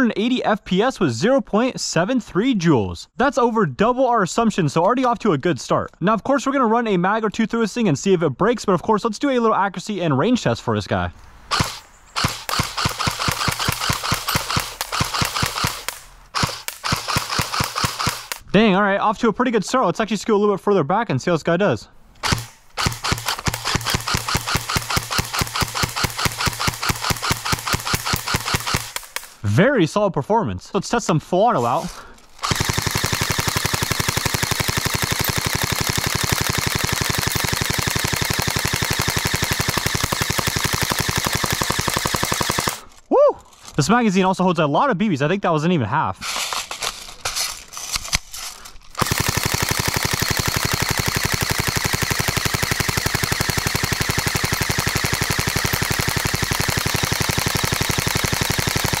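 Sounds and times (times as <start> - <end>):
airsoft rifle shots: 11.5 - 18.4, 22.2 - 29.4, 31.6 - 42.9, 49.0 - 59.0.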